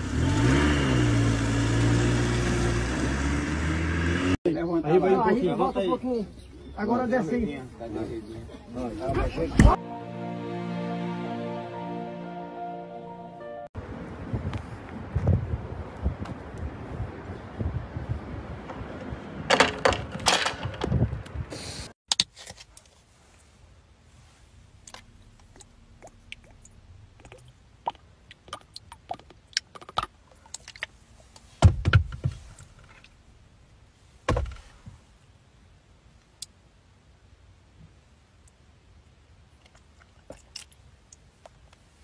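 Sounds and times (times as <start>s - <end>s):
wind on microphone: 14.0s - 19.5s.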